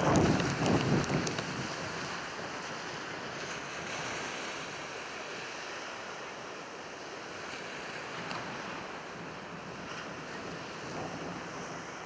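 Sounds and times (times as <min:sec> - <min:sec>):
wind rushing steadily: 0:00.0 - 0:12.0.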